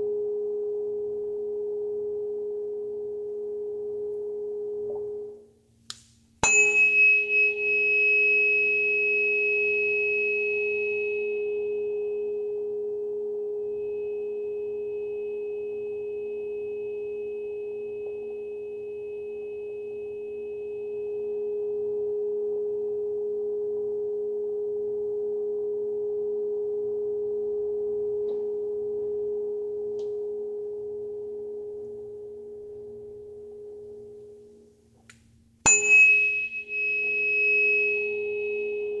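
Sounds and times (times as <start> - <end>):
tuning fork tap: 5.9 - 9.3, 17.9 - 18.6, 28.2 - 28.6, 29.9 - 30.3, 35.0 - 39.0
tuning fork ringing: 6.4 - 34.7, 35.6 - 39.0.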